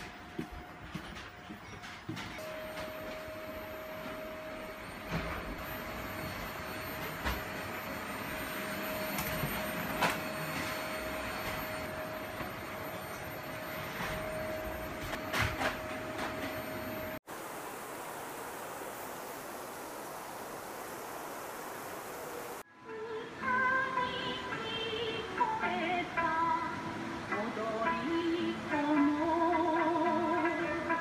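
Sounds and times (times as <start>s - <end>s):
steady rushing noise: 17.3s - 22.6s.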